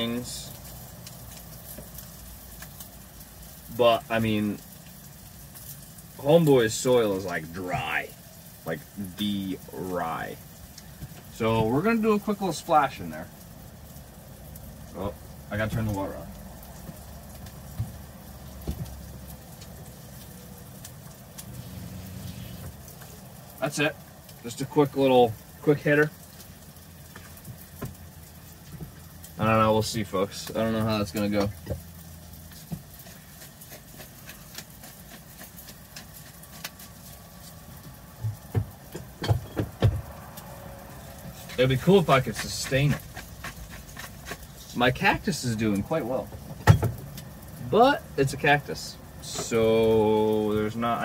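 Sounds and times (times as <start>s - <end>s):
objects knocking on counter: 38.2s - 40.1s.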